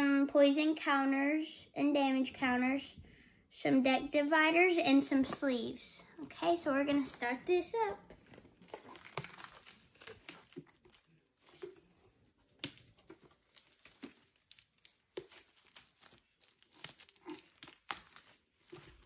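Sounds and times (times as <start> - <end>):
plastic wrap tearing and crinkling: 7.0 - 19.0.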